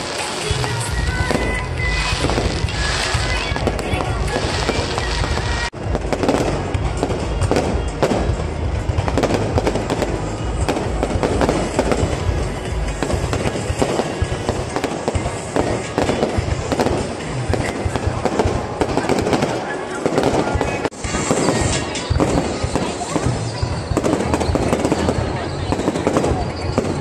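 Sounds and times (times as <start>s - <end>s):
fireworks bangs and crackles: 0.0s - 27.0s.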